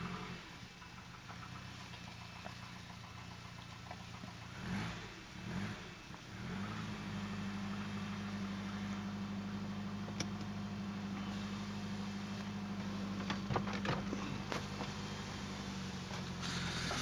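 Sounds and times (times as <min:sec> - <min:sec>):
car engine idling and revving: 0:00.0 - 0:17.0.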